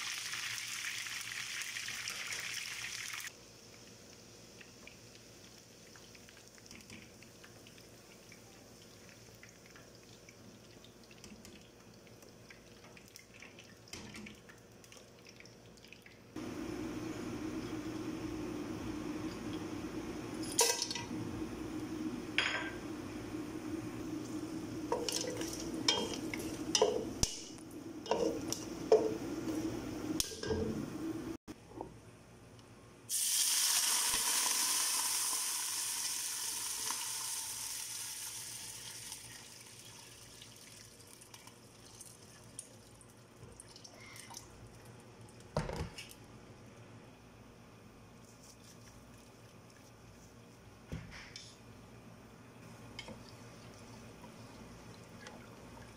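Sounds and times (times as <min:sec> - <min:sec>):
water hissing in hot oil: 0:00.0 - 0:07.2, 0:33.1 - 0:41.3.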